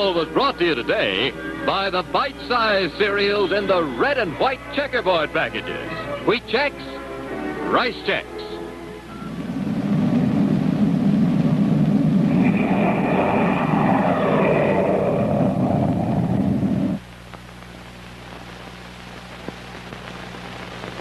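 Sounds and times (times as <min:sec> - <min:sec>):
faint high whine: 0:07.6 - 0:21.0
low electrical hum: 0:08.3 - 0:21.0
loud rumbling roar: 0:09.6 - 0:17.0.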